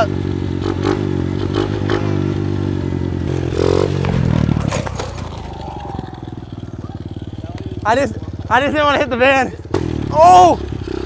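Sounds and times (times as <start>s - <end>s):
dirt bike engine running: 0.0s - 11.0s
motorbike scraping and clattering on asphalt: 3.2s - 8.5s.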